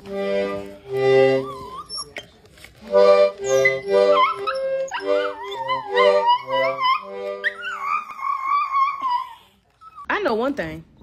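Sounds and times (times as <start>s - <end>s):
small dog howling: 4.1s - 9.4s.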